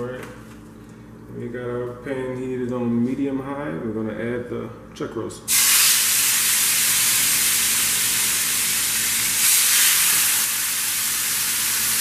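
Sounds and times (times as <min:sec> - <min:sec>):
meat sizzling in a pan: 0:05.5 - 0:12.0.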